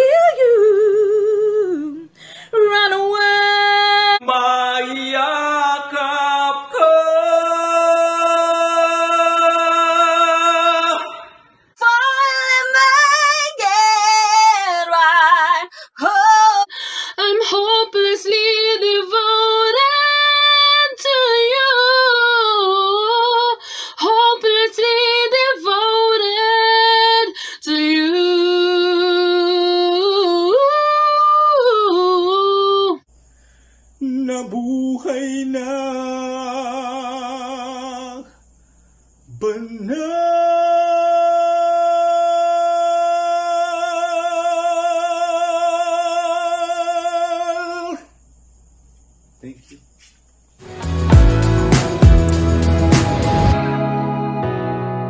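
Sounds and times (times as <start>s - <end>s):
woman singing a ballad: 0.0s - 4.4s, 11.8s - 33.0s.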